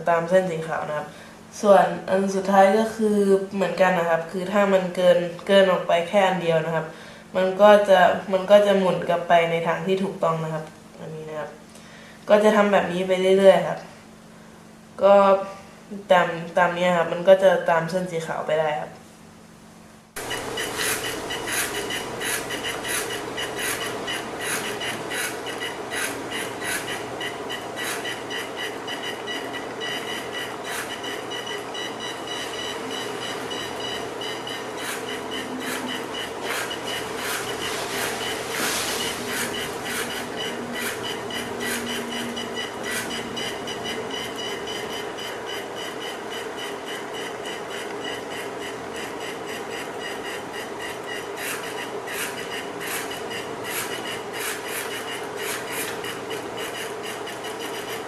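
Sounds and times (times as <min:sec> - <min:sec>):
rapid irregular clicking: 0:20.2 - 0:58.0
small motors whining: 0:20.2 - 0:58.0.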